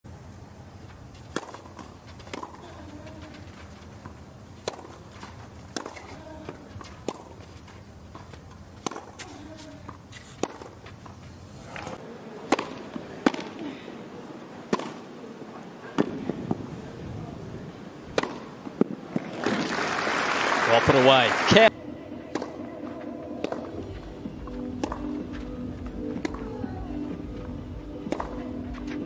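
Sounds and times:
tennis balls struck by rackets: 0:00.6 - 0:13.7, 0:14.6 - 0:15.2, 0:15.9 - 0:16.6, 0:18.1 - 0:19.5, 0:22.1 - 0:29.0.

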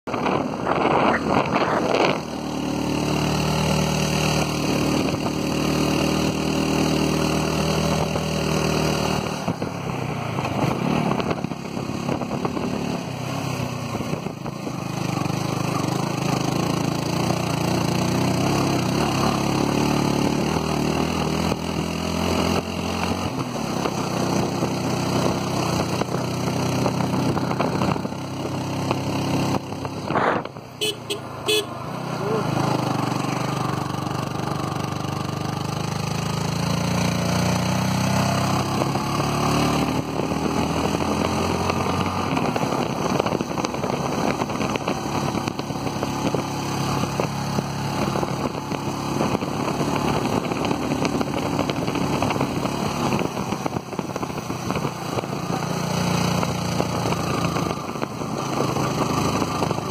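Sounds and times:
motorcycle engine running: 0:00.0 - 0:59.9
wind rush over microphone: 0:00.1 - 0:02.4.

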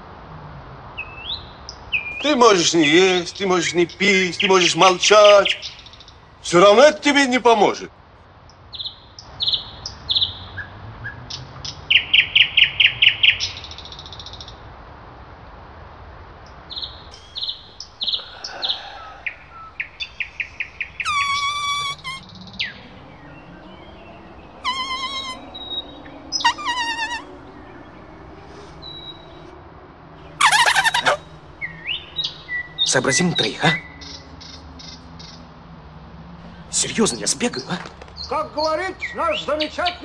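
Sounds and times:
birds chirping: 0:01.4 - 0:07.9, 0:16.7 - 0:35.5, 0:36.4 - 0:40.0
harsh rasping bird calls: 0:02.0 - 0:07.7, 0:17.1 - 0:35.4, 0:36.4 - 0:40.0
bird trills: 0:17.1 - 0:29.6, 0:30.2 - 0:35.4.

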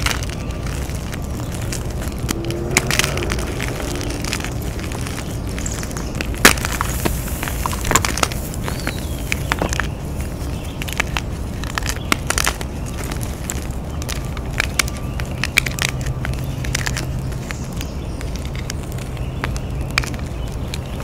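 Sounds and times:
chalk blocks cracking and crumbling: 0:00.0 - 0:21.0
steady low rumble: 0:00.0 - 0:21.0.

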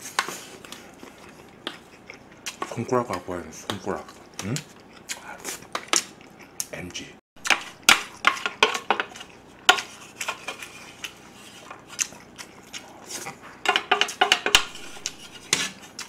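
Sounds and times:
utensil scraping metal lunch box: 0:14.5 - 0:15.9.

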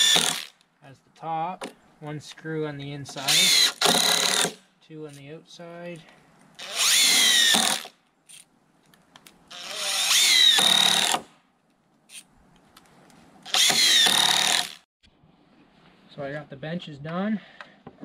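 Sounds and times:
cordless drill driving screws into wood: 0:00.0 - 0:00.6, 0:03.2 - 0:04.6, 0:06.6 - 0:08.0, 0:09.5 - 0:11.4, 0:13.4 - 0:14.8.

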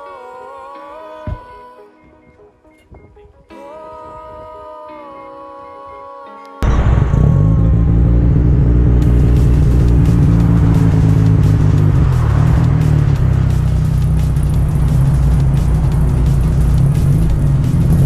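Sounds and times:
rotary engine exhaust drone: 0:06.6 - 0:18.0.

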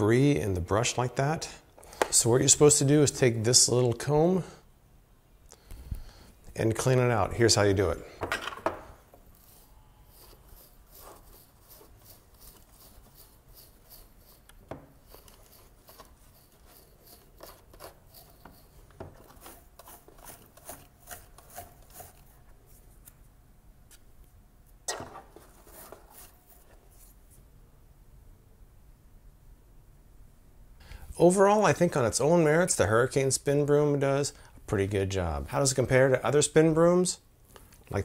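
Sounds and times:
comb scraping a brush: 0:09.2 - 0:23.2, 0:24.9 - 0:27.4.

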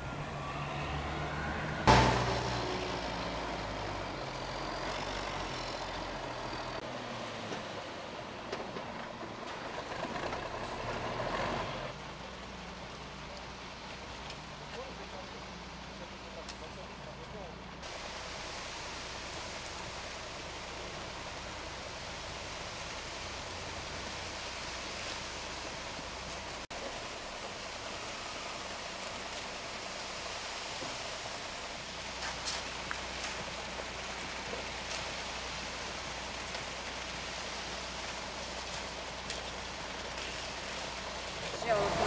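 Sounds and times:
truck engine hum: 0:00.0 - 0:42.0
wet concrete rushing down chute: 0:16.3 - 0:42.0.

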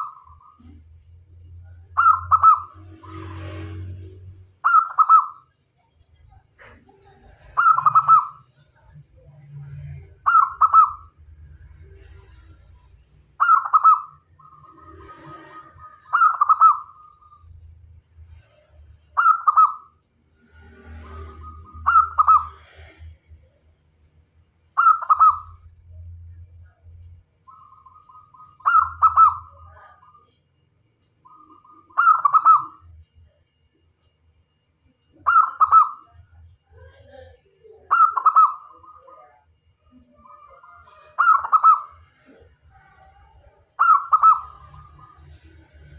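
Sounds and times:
dove cooing: 0:02.0 - 0:03.2, 0:04.6 - 0:05.4, 0:07.5 - 0:08.4, 0:10.2 - 0:11.1, 0:13.4 - 0:17.0, 0:21.8 - 0:22.8, 0:24.8 - 0:25.6, 0:27.5 - 0:30.0, 0:31.3 - 0:32.8, 0:35.2 - 0:36.0, 0:37.7 - 0:39.1, 0:40.2 - 0:45.2.

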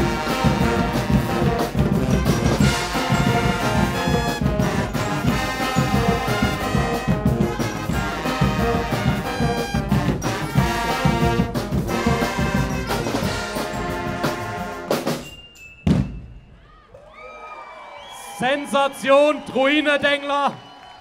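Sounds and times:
drum hits: 0:00.0 - 0:15.2
brass band playing: 0:00.0 - 0:15.3.

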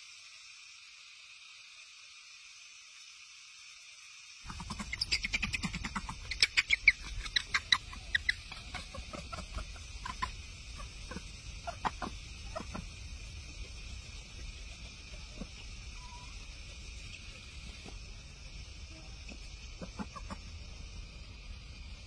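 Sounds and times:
young monkey squealing: 0:04.5 - 0:12.8, 0:15.4 - 0:16.4.

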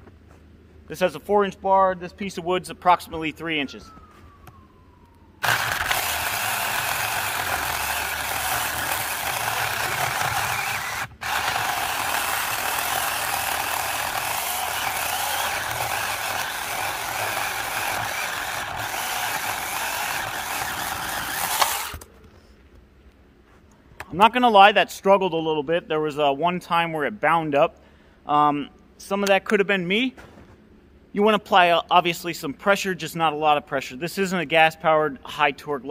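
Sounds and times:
mini chainsaw cutting wood: 0:05.4 - 0:22.1.

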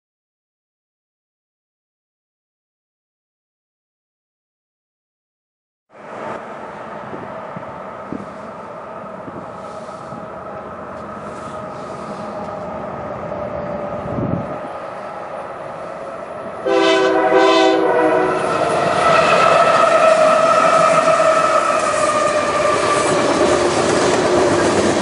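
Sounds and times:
diesel locomotives running: 0:05.9 - 0:25.0
loud steady tone: 0:13.0 - 0:23.1
locomotive horn chord: 0:16.6 - 0:19.3.

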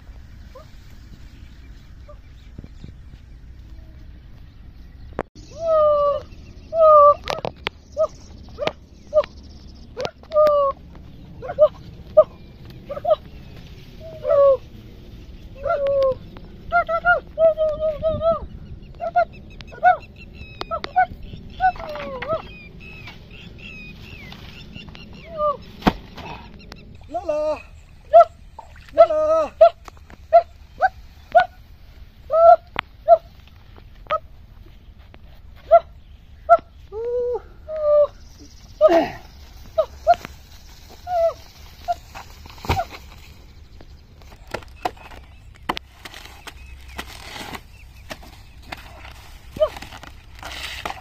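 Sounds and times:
birds chirping: 0:00.0 - 0:51.0
faint outdoor background: 0:00.0 - 0:51.0
machete chopping banana trunks: 0:25.7 - 0:26.5, 0:42.5 - 0:43.2.

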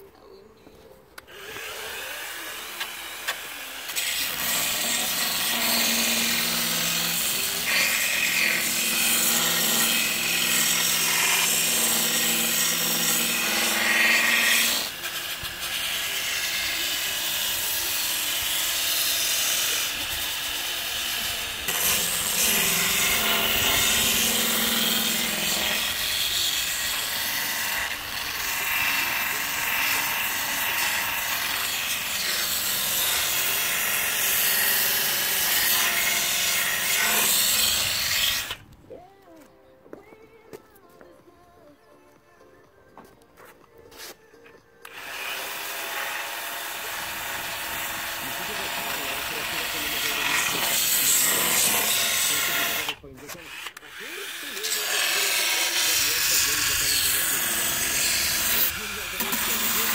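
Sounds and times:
power file sanding wood: 0:01.3 - 0:38.6, 0:44.9 - 0:59.9.

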